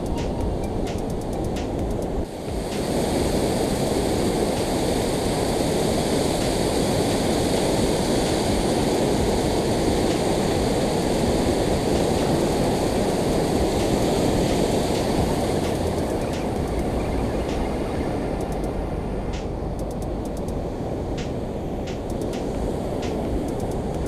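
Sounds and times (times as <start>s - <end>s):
water rushing down spillway: 2.3s - 16.8s.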